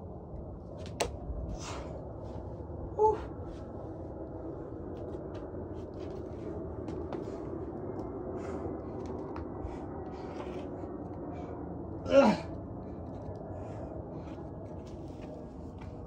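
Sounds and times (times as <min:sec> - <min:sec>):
man grunting with effort: 0:12.0 - 0:12.5.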